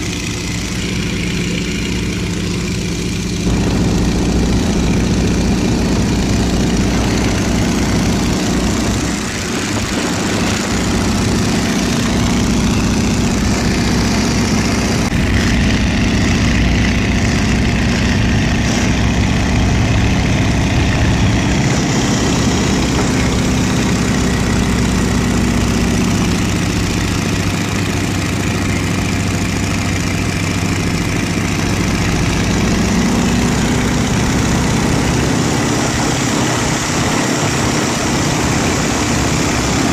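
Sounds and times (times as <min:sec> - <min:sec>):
biplane engine and propeller: 0:00.0 - 0:39.9
heavy wind noise: 0:03.4 - 0:27.1.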